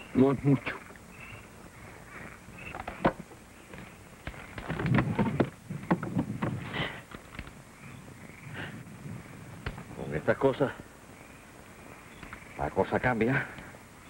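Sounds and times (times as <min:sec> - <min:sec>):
faint insect chirring: 0:00.0 - 0:14.0
hard objects knocking and clattering: 0:04.4 - 0:06.6.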